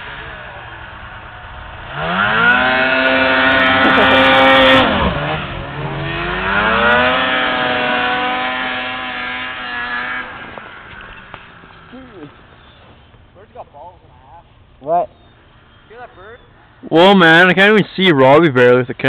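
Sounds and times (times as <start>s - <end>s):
snowmobile engine revving: 0.0s - 13.6s.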